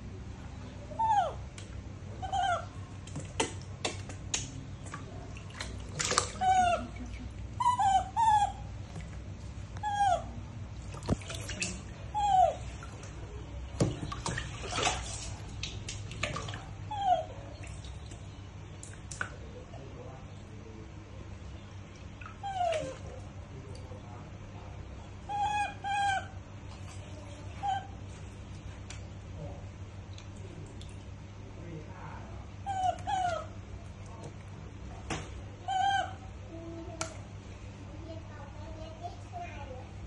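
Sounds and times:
baby monkeys whimpering: 0.9s - 1.5s, 2.2s - 2.8s, 6.3s - 8.8s, 9.8s - 10.4s, 12.1s - 12.7s, 25.2s - 26.4s, 27.5s - 28.0s, 32.7s - 33.6s, 35.7s - 36.3s
water splashing in plastic tub: 3.0s - 7.6s, 10.8s - 16.9s, 17.5s - 19.5s.

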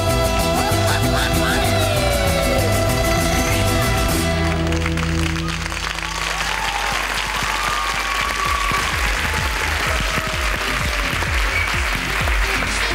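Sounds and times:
song ending: 0.0s - 6.5s
audience applause: 4.1s - 12.9s.

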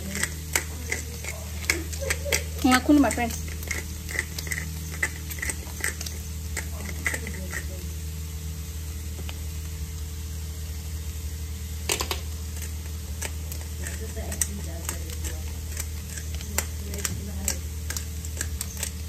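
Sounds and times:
pepper grinder crunching: 0.0s - 8.1s, 11.8s - 19.0s
steady low hum: 0.0s - 19.0s.

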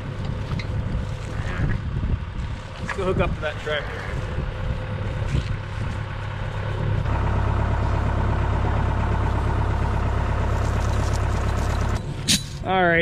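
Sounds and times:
tractor diesel engine idling: 3.0s - 13.0s.

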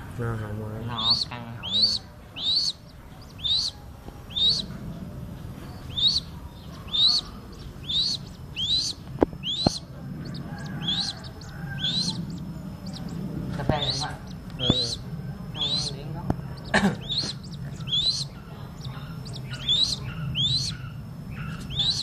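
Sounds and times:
bird chick cheeping: 0.3s - 22.0s
sharp clicks: 8.8s - 9.8s.

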